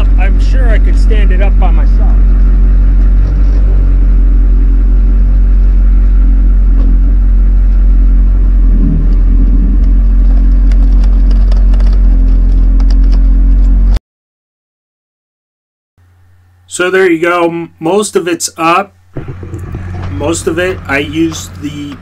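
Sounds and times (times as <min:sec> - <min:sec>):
truck engine idling: 0:00.0 - 0:13.9, 0:19.1 - 0:22.0.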